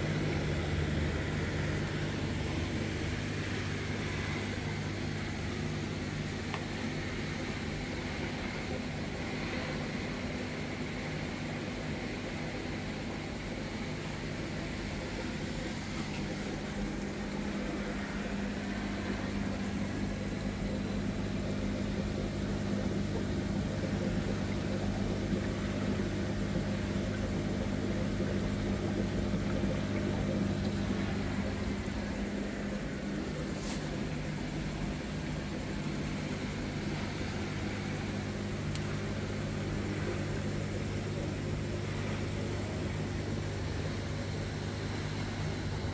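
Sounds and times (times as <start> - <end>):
air pump electric hum: 0.0 - 45.9
air bubbles fizzing in water: 12.9 - 45.9.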